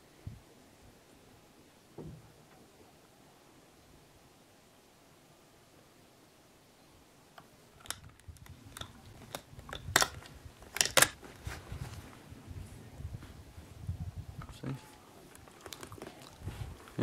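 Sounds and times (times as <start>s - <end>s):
sharp clicks and knocks: 7.8s - 11.2s.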